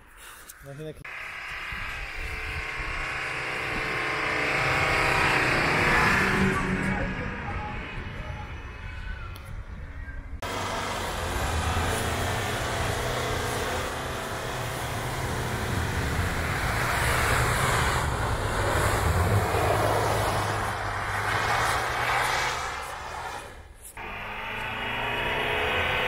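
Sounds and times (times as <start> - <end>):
pickup truck engine pulling: 1.1 - 8.7, 10.4 - 26.0
hiss of snow from tyres: 16.8 - 23.7.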